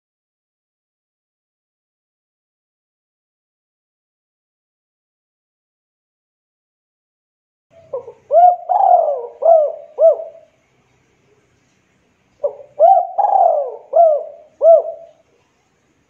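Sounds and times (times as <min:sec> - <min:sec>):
dove cooing: 0:07.8 - 0:10.6, 0:12.4 - 0:15.4.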